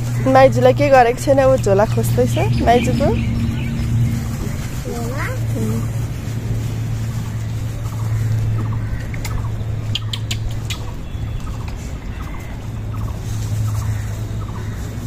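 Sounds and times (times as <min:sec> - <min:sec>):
steady low hum: 0:00.0 - 0:15.0
sharp clicks: 0:09.1 - 0:11.0.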